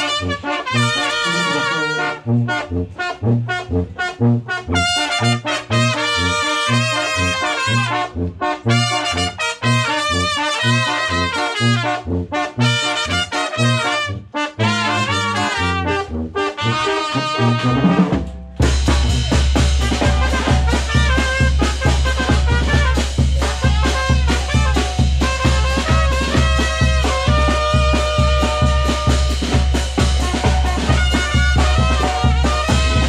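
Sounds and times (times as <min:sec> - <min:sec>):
brass band playing: 0:00.0 - 0:33.0
music with heavy bass: 0:00.8 - 0:04.9, 0:18.5 - 0:33.0.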